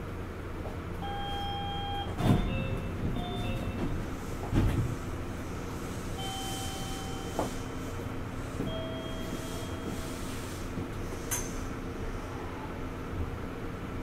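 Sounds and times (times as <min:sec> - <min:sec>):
train car equipment hum: 0:00.0 - 0:14.0
long electronic beeps: 0:06.2 - 0:07.4, 0:08.7 - 0:10.0.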